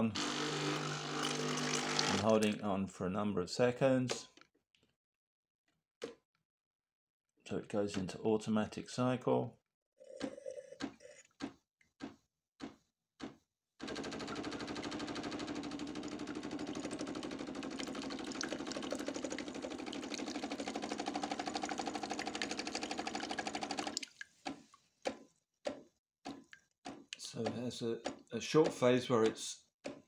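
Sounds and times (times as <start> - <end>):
coffee machine pump buzzing: 0.0 - 2.3, 13.9 - 23.9.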